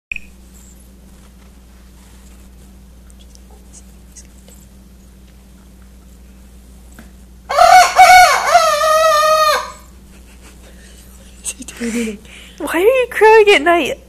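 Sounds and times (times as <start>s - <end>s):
rooster crowing: 7.5s - 9.9s.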